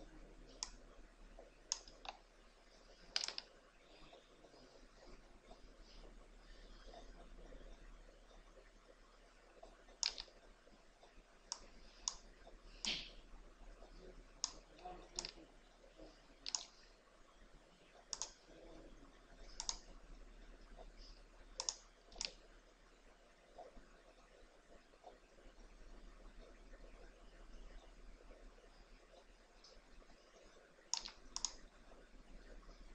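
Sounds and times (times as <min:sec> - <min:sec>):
computer mouse clicks: 0:00.5 - 0:02.3, 0:03.0 - 0:04.2, 0:09.6 - 0:10.4, 0:11.0 - 0:13.2, 0:14.4 - 0:15.4, 0:16.4 - 0:16.9, 0:18.0 - 0:18.6, 0:19.4 - 0:19.9, 0:20.8 - 0:22.5, 0:30.4 - 0:32.0.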